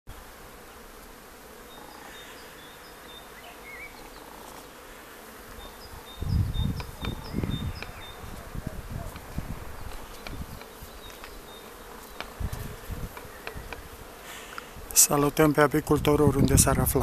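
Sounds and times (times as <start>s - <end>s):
bees buzzing: 0.1s - 17.0s
wind buffeting microphone: 5.8s - 10.8s, 12.3s - 14.1s, 15.8s - 17.0s.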